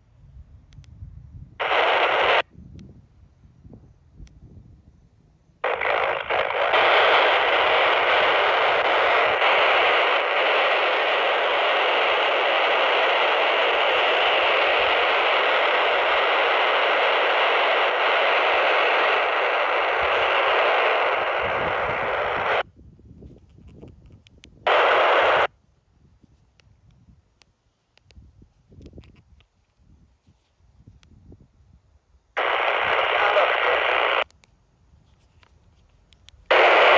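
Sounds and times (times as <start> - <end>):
radio static hiss: 1.6 - 2.5, 5.6 - 22.6, 24.7 - 25.5, 32.3 - 34.4, 35.1 - 36.9.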